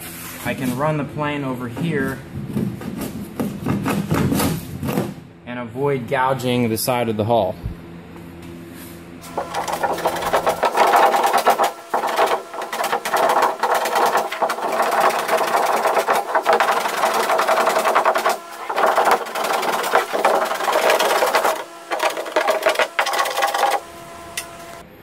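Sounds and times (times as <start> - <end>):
hand plane shaving wood: 9.2 - 24.8.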